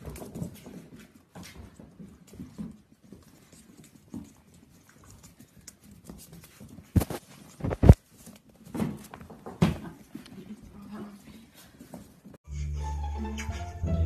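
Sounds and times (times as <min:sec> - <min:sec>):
puppy paws clicking on hard floor: 0:00.0 - 0:12.4
puppy bumping the microphone: 0:06.9 - 0:08.0.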